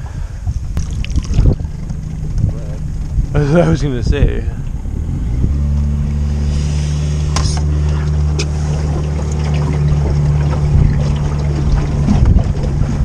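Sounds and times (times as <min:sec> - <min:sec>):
outboard motor running: 0:00.0 - 0:13.0
wind: 0:00.0 - 0:13.0.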